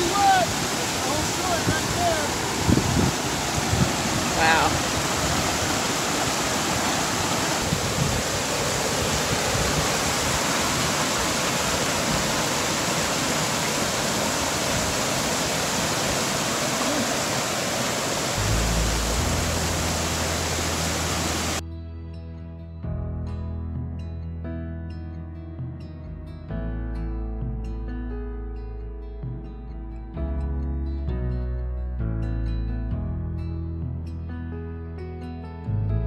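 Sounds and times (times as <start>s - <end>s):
stream rushing over rocks: 0.0s - 21.6s.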